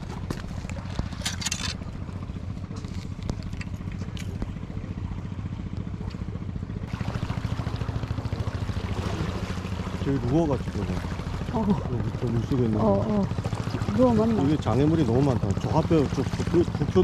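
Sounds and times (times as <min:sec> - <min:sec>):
low engine drone: 0:00.0 - 0:17.0
scraping clatter: 0:01.0 - 0:01.8.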